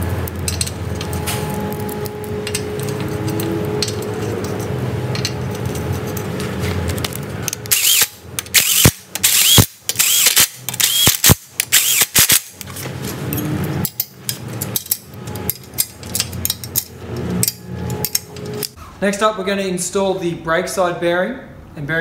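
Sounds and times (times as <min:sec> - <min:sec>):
hand ratchet clicking: 0:07.6 - 0:12.6
power driver whining: 0:07.6 - 0:12.6.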